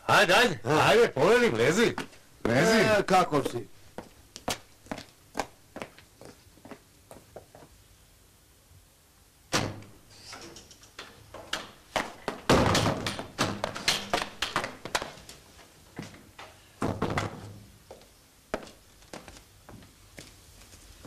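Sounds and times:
knocks and thumps: 11.0 - 15.2, 16.8 - 17.7
wooden door banging: 11.4 - 14.8.

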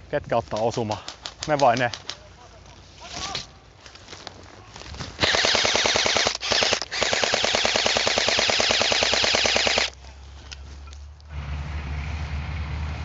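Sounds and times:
airsoft rifle full-auto rattle: 5.2 - 10.0.

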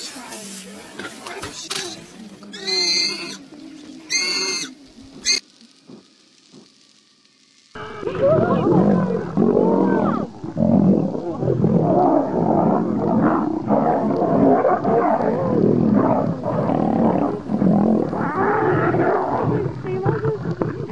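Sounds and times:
lions snarling and roaring: 8.2 - 20.9.

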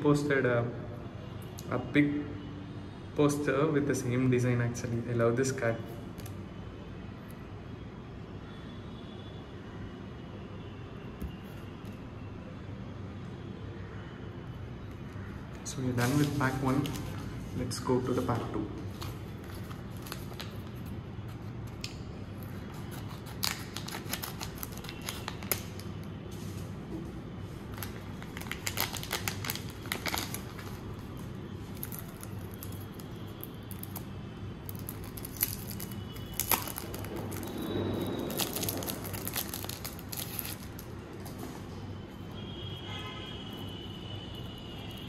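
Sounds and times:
wrapper tearing and crinkling: 19.0 - 20.9, 22.4 - 26.0, 27.7 - 40.9
crackles and clicks: 27.8 - 40.9.

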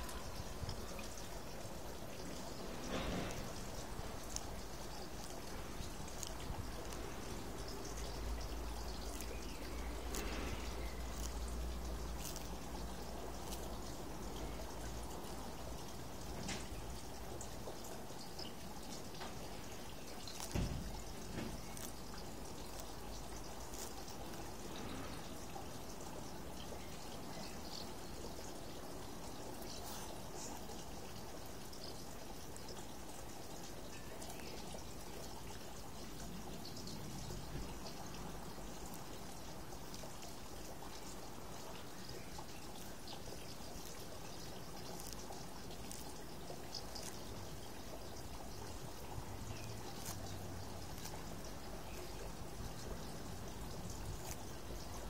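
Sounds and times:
background hiss: 0.0 - 55.0
tortoise chewing lettuce: 0.0 - 55.0.

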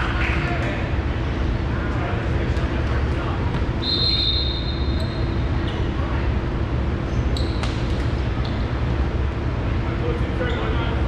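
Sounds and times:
gym hubbub: 0.0 - 11.0
referee's whistle: 3.8 - 5.2
shoe squeak: 3.8 - 6.0, 7.1 - 8.7, 10.4 - 10.9.

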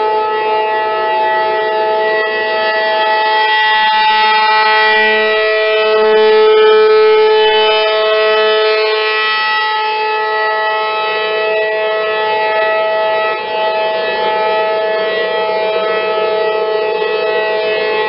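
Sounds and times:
rotating warning siren: 0.0 - 18.0.

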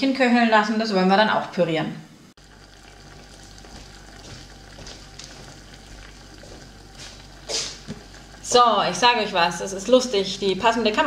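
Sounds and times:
apple simmering in a saucepan: 2.4 - 11.0.

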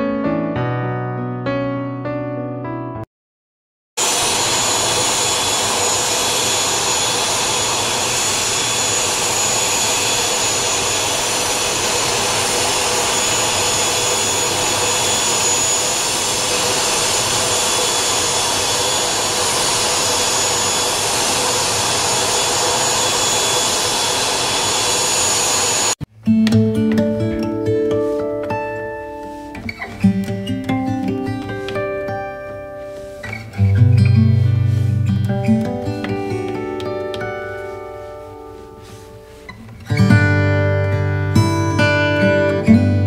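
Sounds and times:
turboprop engines running: 4.0 - 26.0.

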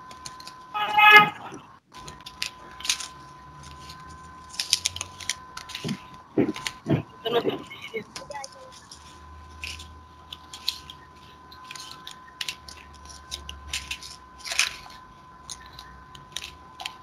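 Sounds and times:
faint high whine: 0.0 - 17.0.

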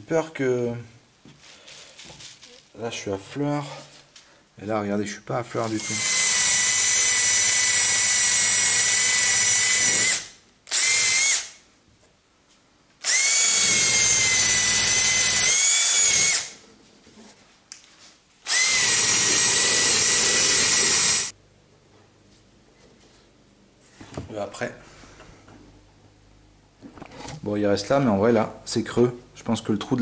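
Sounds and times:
cordless drill high whine: 5.8 - 11.6, 13.0 - 16.6, 18.4 - 21.3.

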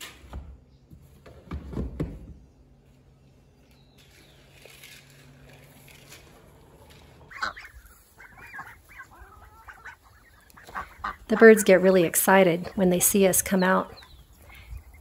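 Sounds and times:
low steady hum: 0.0 - 15.0
ducks and chickens squawking: 6.6 - 15.0.

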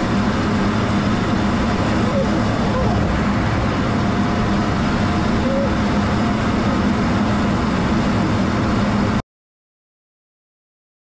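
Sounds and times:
jet engine and airflow rushing: 0.0 - 9.2
low drone: 0.0 - 9.2.

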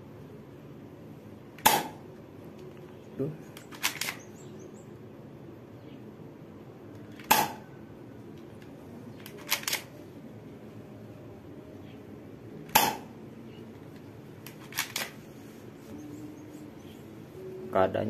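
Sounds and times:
airsoft pistol shot snap: 1.6 - 2.0, 7.2 - 7.6, 12.7 - 13.1
pistol slide racking clicks: 3.6 - 4.3, 8.4 - 9.9, 14.4 - 15.2.

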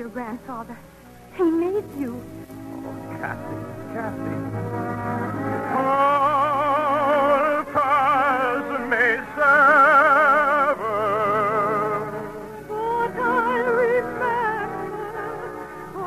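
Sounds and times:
orchestral accompaniment: 0.0 - 16.0
operatic singing: 5.4 - 16.0.

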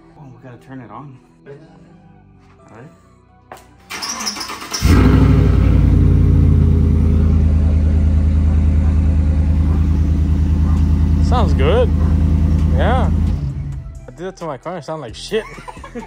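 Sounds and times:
engine starter cranking: 3.9 - 6.5
truck engine idling: 4.8 - 14.1.

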